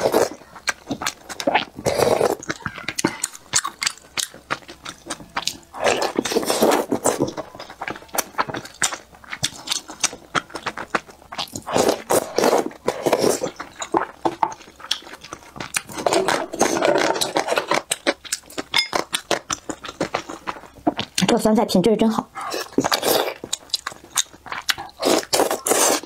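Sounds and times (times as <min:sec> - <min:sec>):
wet chewing and lip smacks: 0:00.0 - 0:16.2, 0:22.4 - 0:26.0.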